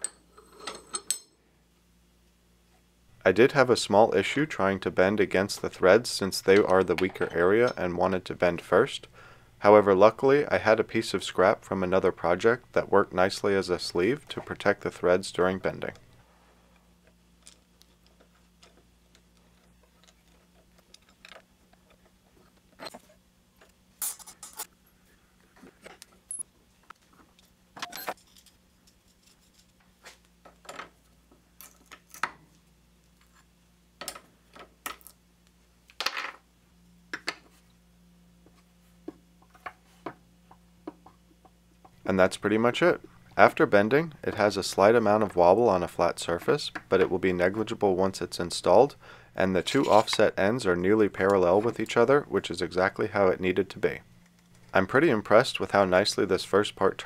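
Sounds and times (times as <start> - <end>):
metal rod clinking against vise: 0.0 - 1.4.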